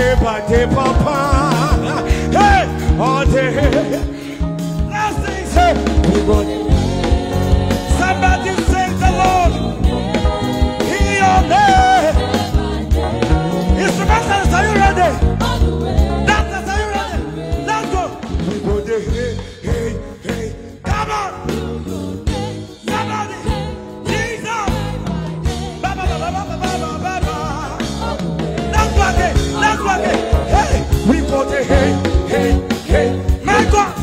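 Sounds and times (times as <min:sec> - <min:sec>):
man singing into a microphone: 0:00.0 - 0:07.0, 0:07.9 - 0:09.8, 0:10.8 - 0:12.3, 0:16.2 - 0:21.5, 0:22.9 - 0:34.0
gospel band with steady beat: 0:00.0 - 0:34.0.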